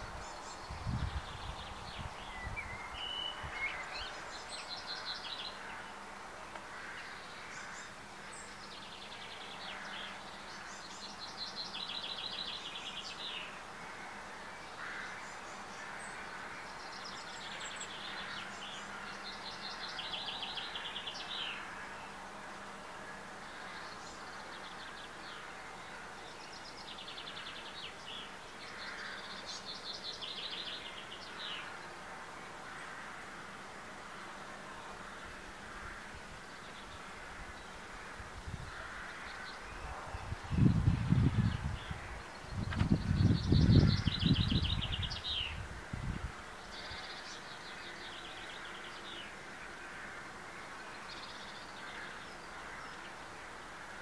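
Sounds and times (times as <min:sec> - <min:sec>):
faint outdoor background: 0:00.0 - 0:54.0
small songbirds singing: 0:00.0 - 0:54.0
steady background hiss: 0:00.0 - 0:54.0
songbird trilling: 0:40.6 - 0:45.6.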